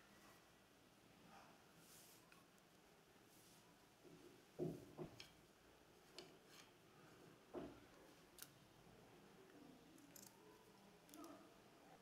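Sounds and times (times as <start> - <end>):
soft knock: 4.6 - 5.2.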